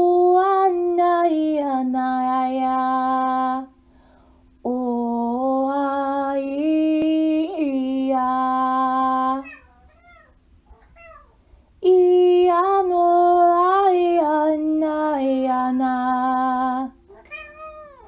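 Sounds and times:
woman singing sustained wordless notes: 0.0 - 3.8, 4.6 - 9.6, 11.8 - 17.0.

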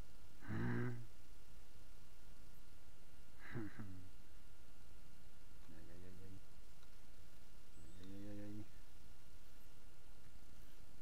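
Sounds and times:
low background noise: 0.0 - 11.0
man's short vocal sound: 0.4 - 1.1, 3.4 - 4.0.

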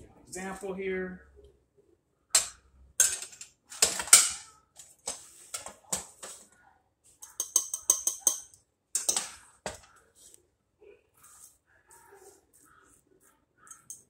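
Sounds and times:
metal spoon scraping a pot: 2.4 - 6.4, 7.2 - 9.9.

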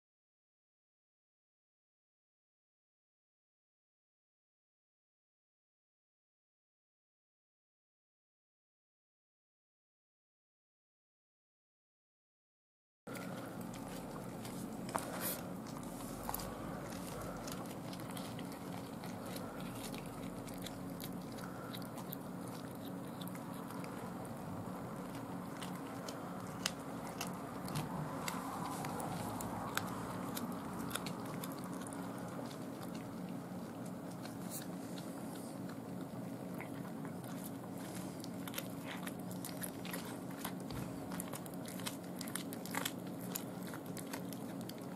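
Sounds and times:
cat chewing with crunches: 13.1 - 44.9
low steady hum: 13.1 - 44.9.

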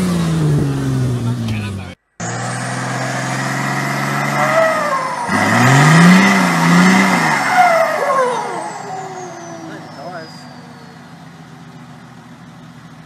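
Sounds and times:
off-road vehicle engine revving: 0.0 - 13.0
higher whine: 2.2 - 11.2.

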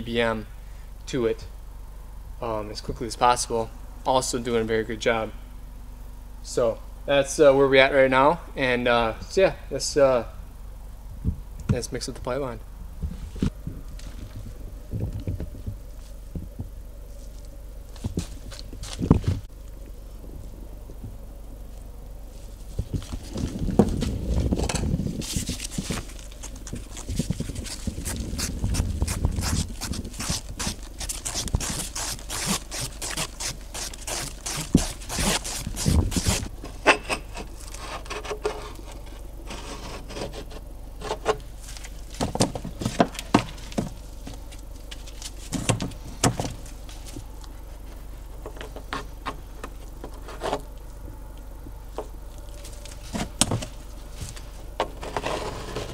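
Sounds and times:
putty knife scraping and squishing: 25.2 - 43.8, 50.1 - 50.7, 52.6 - 55.9.

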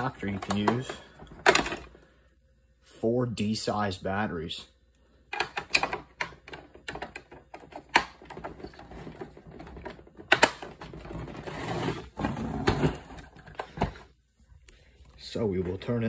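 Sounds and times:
plastic cover clicking and snapping: 5.4 - 11.0
plastic case rubbing and knocking: 6.3 - 14.0.

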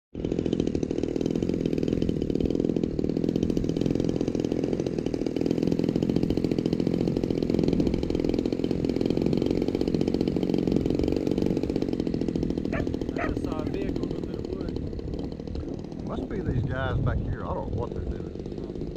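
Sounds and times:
model airplane engine idling: 0.2 - 18.9.

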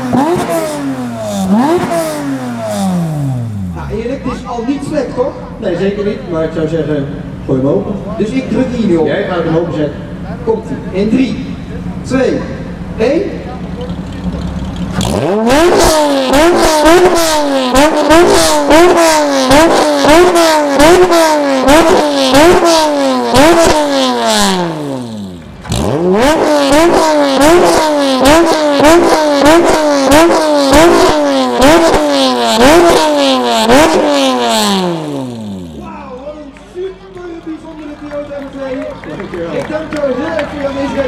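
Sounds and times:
car engine revving in blips: 0.0 - 4.4, 11.3 - 35.8
exhaust pops: 13.6 - 35.9.

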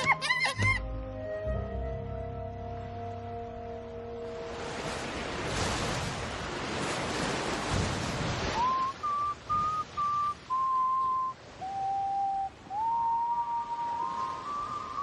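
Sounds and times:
ocean waves: 0.0 - 15.0
whistle-like melody: 8.6 - 15.0.

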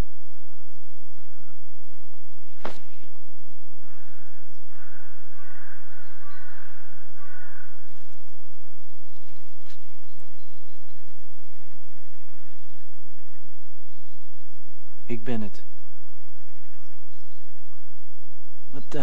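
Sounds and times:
steady low hum: 0.0 - 19.0
crows cawing: 3.8 - 8.2.

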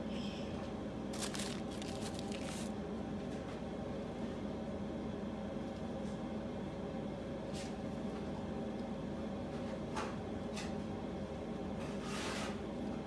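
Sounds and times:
machine hum: 0.0 - 5.7
hands rustling in bowl of food: 1.1 - 2.7.

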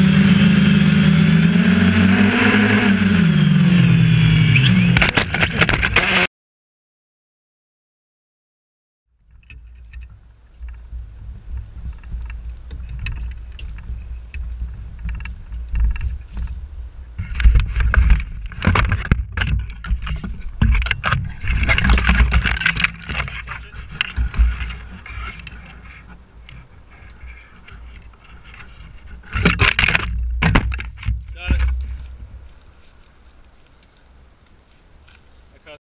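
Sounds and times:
wind rumble on microphone: 9.2 - 32.8
branches rustling and snapping: 9.2 - 35.8.

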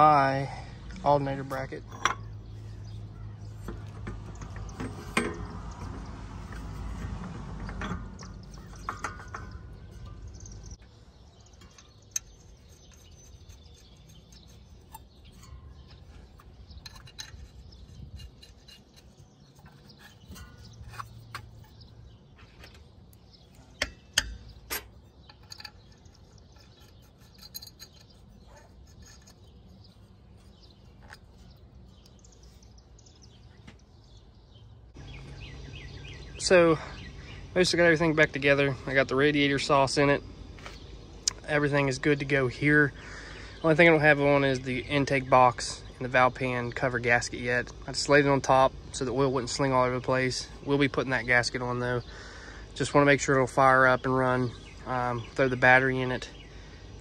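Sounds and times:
light metal clinks: 1.5 - 21.8, 23.2 - 33.9.

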